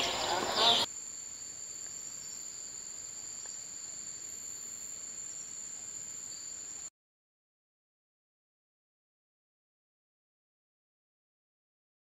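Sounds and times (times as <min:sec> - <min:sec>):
high-pitched insect trill: 0:00.0 - 0:06.9
low hiss: 0:00.0 - 0:06.9.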